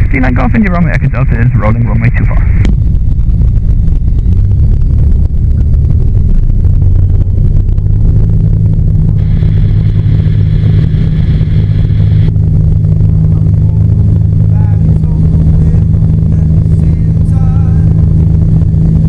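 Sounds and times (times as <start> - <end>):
aircraft engine and propeller drone: 0.0 - 19.0.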